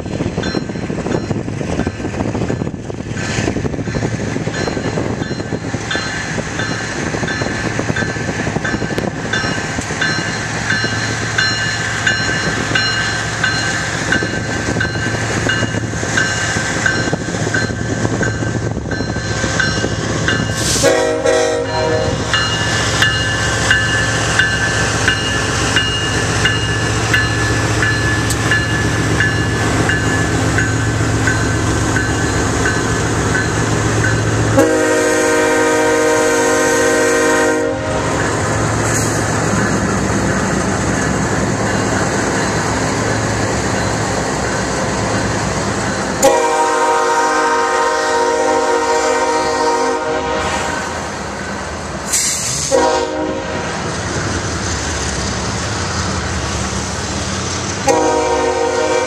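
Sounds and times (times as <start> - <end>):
freight train rumbling past: 0.0 - 59.0
locomotive air horn: 20.7 - 22.3, 34.5 - 38.2, 46.2 - 50.8, 52.6 - 53.7, 57.8 - 59.0.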